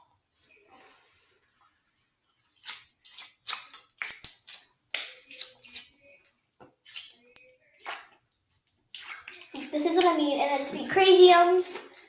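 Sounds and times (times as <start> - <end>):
slime sticky crackles and pops: 2.6 - 5.8.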